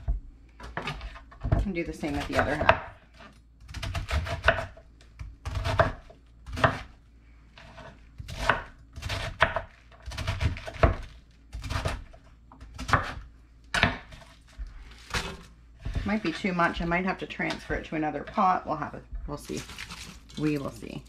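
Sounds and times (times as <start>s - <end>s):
knife slicing cabbage on board: 2.1s - 4.8s, 5.4s - 6.9s, 7.6s - 13.2s.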